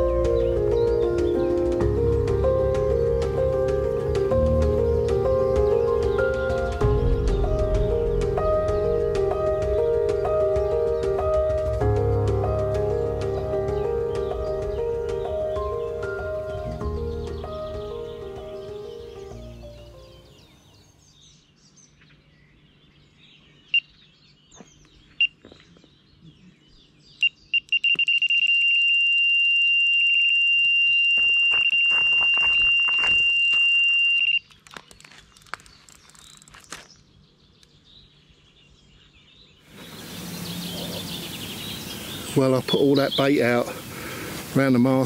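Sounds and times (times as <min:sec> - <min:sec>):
electronic bite alarm bleeps: 0:27.2 - 0:34.4.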